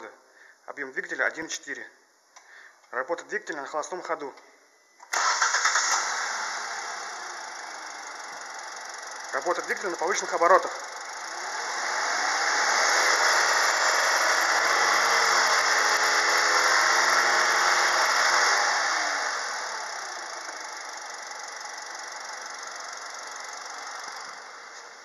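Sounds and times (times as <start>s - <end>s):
car engine revving and idling: 5.2s - 25.0s.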